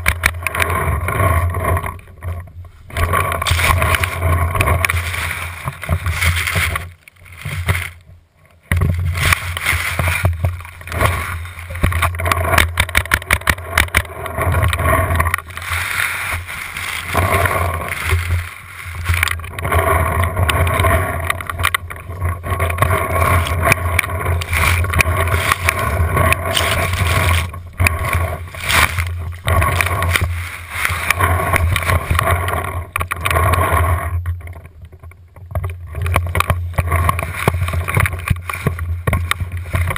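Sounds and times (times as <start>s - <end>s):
tall grass rustling and scraping: 0.0s - 34.2s, 36.0s - 39.9s
steady low rumble: 0.6s - 35.3s.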